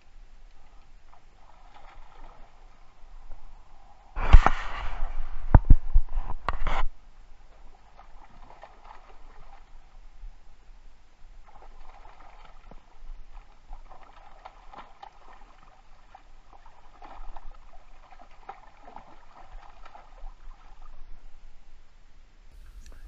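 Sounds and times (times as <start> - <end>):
fish splashing in water: 7.9 - 9.7, 11.4 - 20.8.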